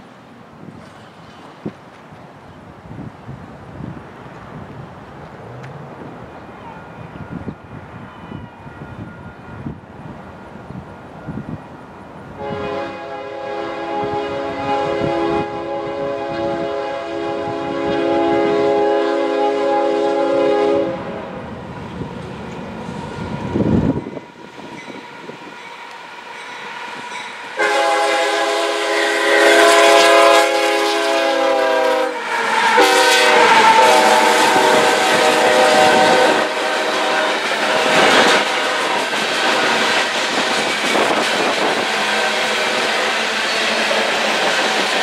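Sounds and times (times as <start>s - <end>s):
freight cars rumbling and clattering: 4.0s - 7.8s
locomotive horn blasts: 12.4s - 21.4s, 27.1s - 45.0s.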